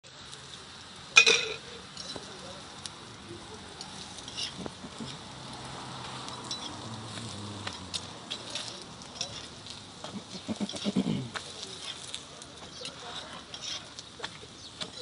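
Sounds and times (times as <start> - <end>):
bread sizzling on griddle: 0.0 - 15.0
metal spatula clinking on pan: 1.2 - 2.3, 6.3 - 6.8, 8.4 - 9.5.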